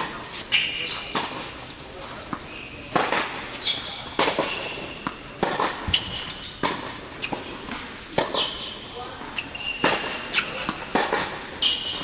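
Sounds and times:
tennis ball hits and bounces: 0:00.0 - 0:01.5, 0:02.2 - 0:03.5, 0:04.1 - 0:08.7, 0:09.8 - 0:12.0
shoes squeaking on court: 0:00.0 - 0:12.0.

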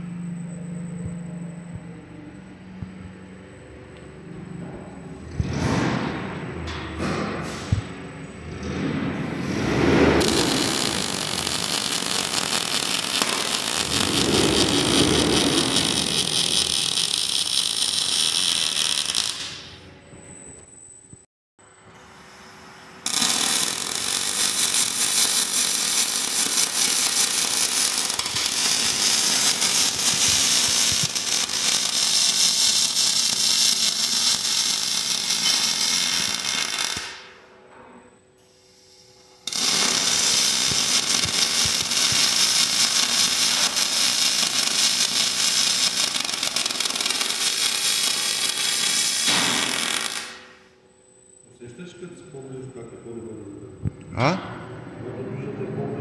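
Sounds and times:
welding arc crackling: 0:10.2 - 0:19.8, 0:23.0 - 0:37.4, 0:38.7 - 0:50.6.

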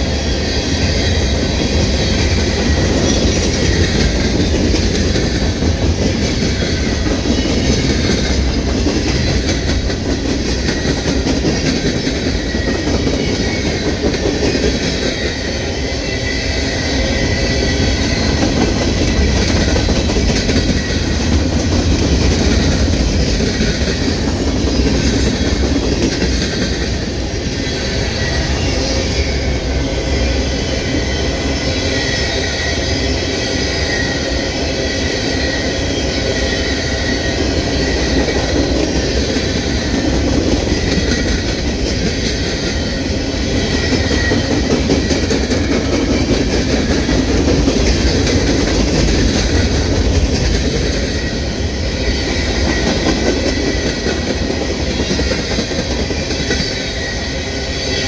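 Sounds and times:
train wheels rumbling on rails: 0:00.0 - 0:58.0
high wheel squeal: 0:10.4 - 0:21.3, 0:27.2 - 0:49.9, 0:50.5 - 0:58.0.

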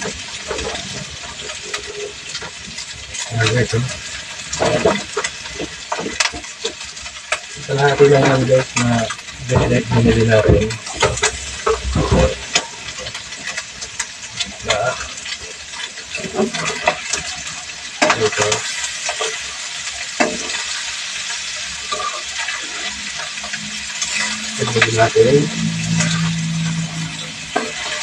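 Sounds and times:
meat sizzling in oil: 0:00.0 - 0:28.0
spatula scraping a pan: 0:18.0 - 0:24.8.

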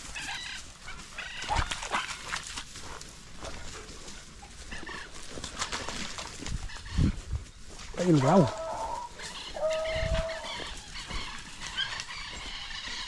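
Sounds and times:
dogs yelping: 0:08.0 - 0:13.0.

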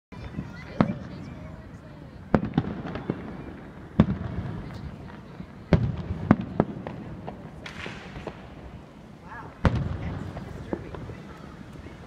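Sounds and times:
fireworks bangs: 0:00.1 - 0:12.0
fireworks pops: 0:02.3 - 0:08.6, 0:09.5 - 0:12.0.

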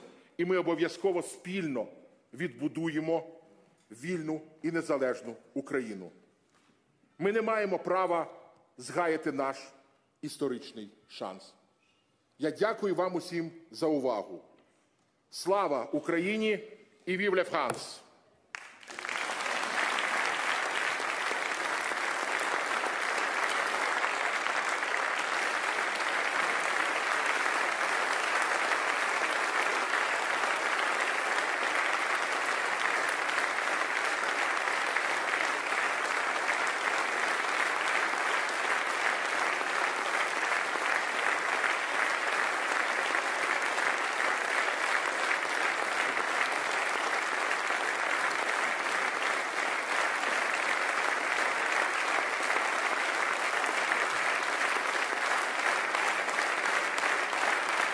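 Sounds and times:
audience applauding: 0:18.5 - 0:57.9.

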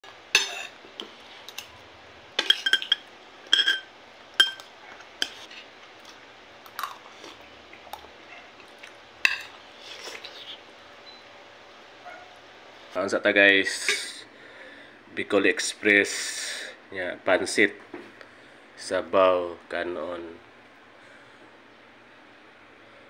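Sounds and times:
quiet eating sounds: 0:00.0 - 0:11.2
cutlery clinking on ceramic plate: 0:00.4 - 0:00.7, 0:02.4 - 0:05.4, 0:09.3 - 0:09.5.

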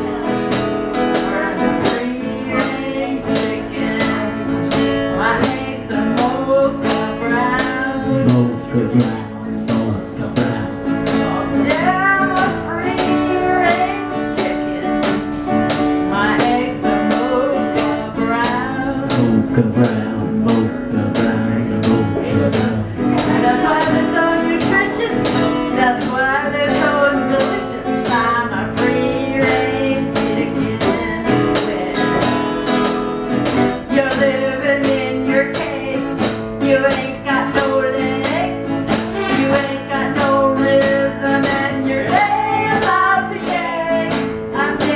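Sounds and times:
drum kit beat: 0:00.0 - 0:44.9
strummed guitar: 0:00.0 - 0:44.9
man singing: 0:06.0 - 0:12.6, 0:17.1 - 0:24.0, 0:39.1 - 0:44.2.

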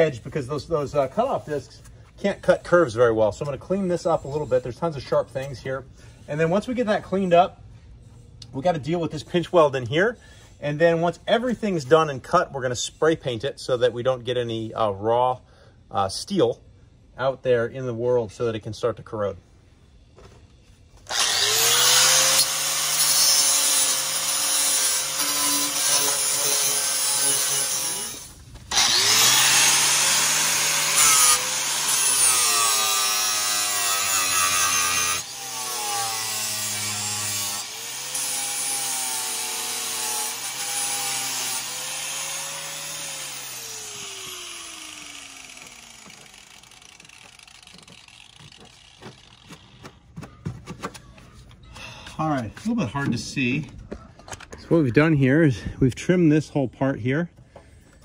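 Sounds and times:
angle grinder grinding metal: 0:21.1 - 0:49.6.

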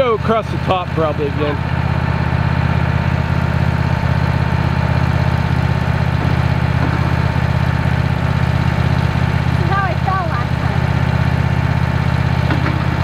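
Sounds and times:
sawmill engine idling: 0:00.0 - 0:13.0.

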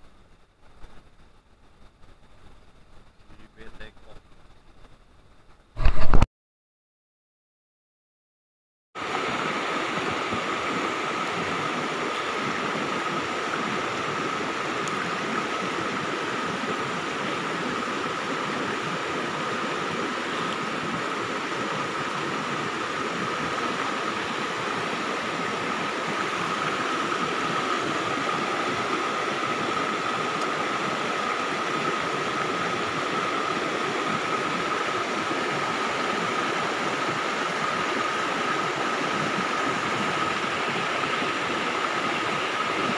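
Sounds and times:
river rushing over stones: 0:09.0 - 0:42.9.

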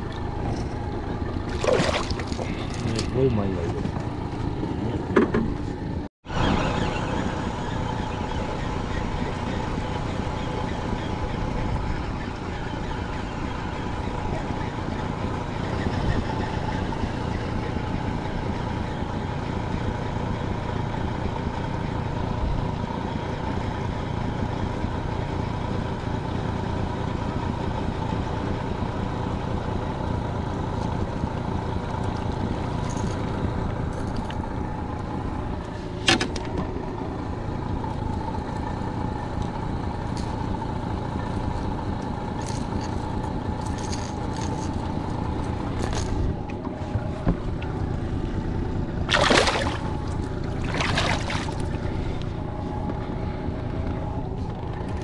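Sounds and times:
water churning: 0:00.0 - 0:03.4, 0:48.0 - 0:52.6
outboard motor running: 0:00.0 - 0:55.0.

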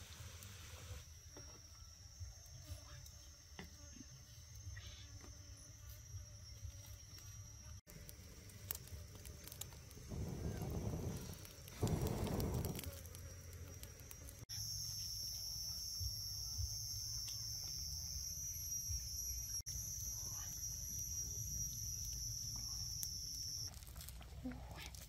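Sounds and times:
high-pitched insect drone: 0:01.0 - 0:23.8
wood fire rushing: 0:07.9 - 0:14.4.

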